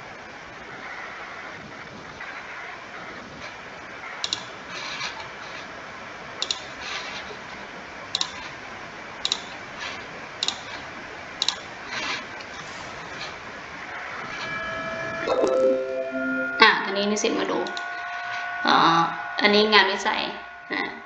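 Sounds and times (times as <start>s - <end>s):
steady background hiss: 0.0s - 21.0s
computer mouse button clicking: 4.2s - 4.5s, 6.4s - 6.6s, 8.2s - 8.4s, 10.4s - 10.6s, 11.4s - 11.6s.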